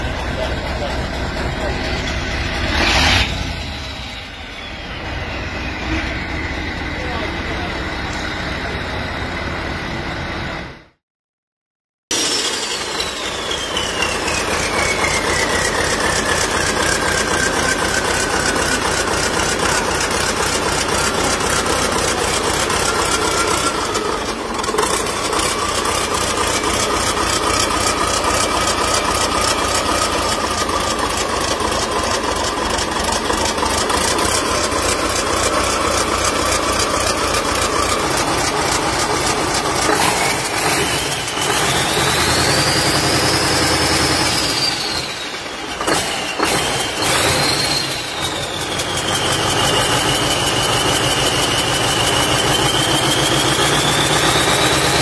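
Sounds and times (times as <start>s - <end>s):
diesel engine idling: 0.0s - 11.0s, 12.7s - 55.0s
high engine whine: 0.0s - 11.0s, 12.1s - 55.0s.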